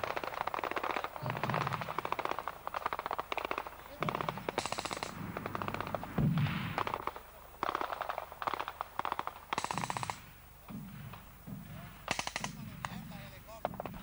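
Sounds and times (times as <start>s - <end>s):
automatic gunfire bursts: 0.0s - 14.0s
deep boom: 4.0s - 7.4s.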